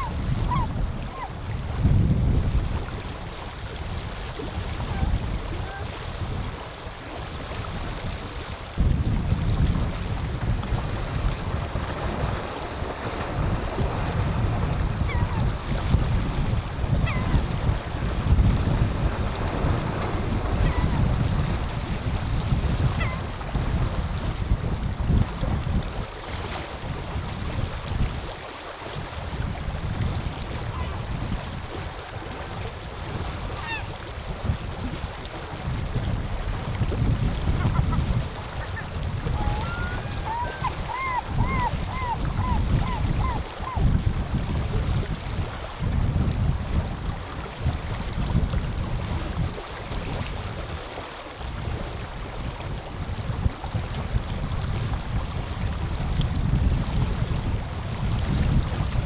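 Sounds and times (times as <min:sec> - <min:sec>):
river water flowing: 0:00.0 - 0:59.0
wind gusting on microphone: 0:00.0 - 0:59.0
river water rushing: 0:26.0 - 0:44.0.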